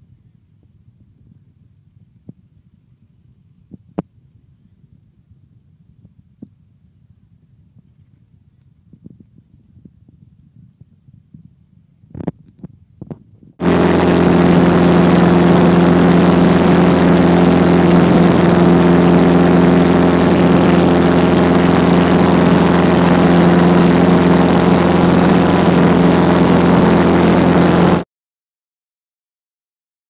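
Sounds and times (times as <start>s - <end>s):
aircraft engine and propeller: 13.6s - 28.0s.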